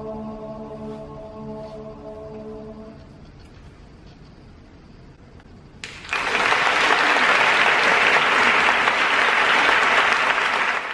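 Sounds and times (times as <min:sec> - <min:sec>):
audience applause: 0:05.8 - 0:10.9.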